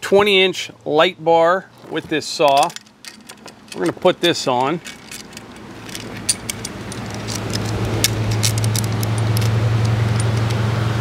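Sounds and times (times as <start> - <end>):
steady low hum: 0.0 - 11.0
saw chain clinking: 1.8 - 10.5.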